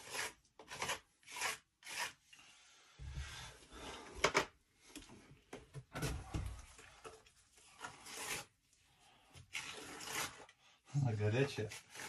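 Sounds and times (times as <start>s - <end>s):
putty knife scraping clay: 0.0s - 2.5s, 6.8s - 12.0s.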